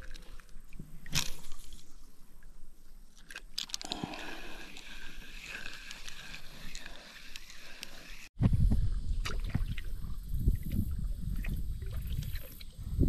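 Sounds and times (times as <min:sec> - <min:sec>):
water lapping and splashing: 0:09.2 - 0:13.0.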